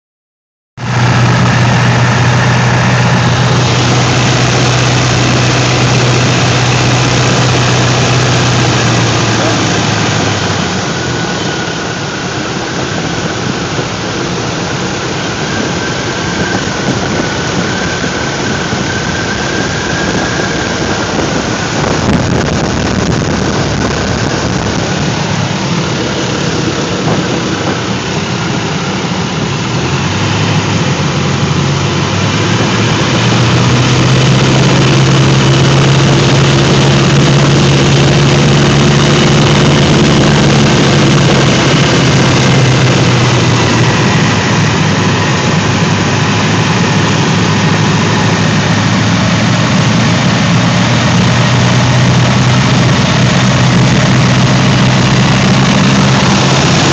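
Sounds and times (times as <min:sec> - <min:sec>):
light aircraft engine droning: 0:00.8 - 0:56.9
rushing air: 0:00.8 - 0:56.9.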